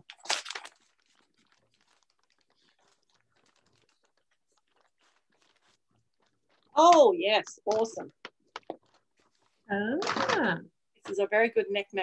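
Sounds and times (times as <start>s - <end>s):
wrapping paper rustling: 0.0s - 8.0s, 8.6s - 9.7s.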